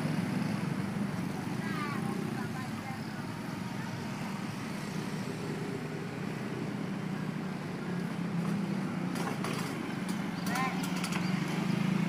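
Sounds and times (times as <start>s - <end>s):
motorcycle engines passing: 0.0s - 12.0s.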